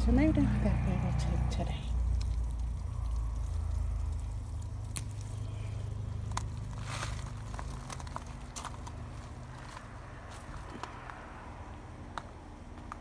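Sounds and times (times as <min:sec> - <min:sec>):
plant leaves rustling: 0:01.4 - 0:10.8
stems snapping: 0:02.0 - 0:09.8.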